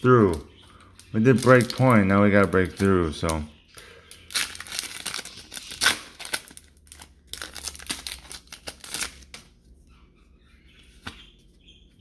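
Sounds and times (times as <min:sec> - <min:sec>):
foil wrapper tearing and crinkling: 0:01.2 - 0:03.0, 0:04.2 - 0:09.5.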